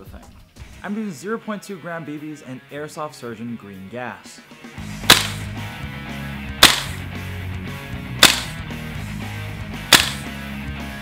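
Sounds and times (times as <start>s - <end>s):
airsoft rifle shots: 5.0s - 5.5s, 6.6s - 7.0s, 8.2s - 8.6s, 9.9s - 10.3s.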